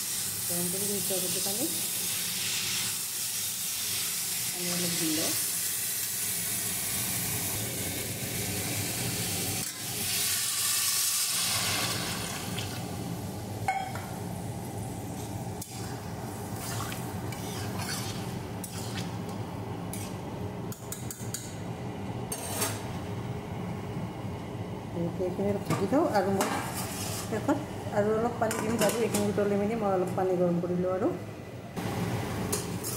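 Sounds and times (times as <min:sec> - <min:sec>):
water hissing in hot pan: 0:00.0 - 0:13.3
pan sizzling: 0:00.0 - 0:19.0
metal spatula scraping pan: 0:16.6 - 0:19.1, 0:26.6 - 0:27.3.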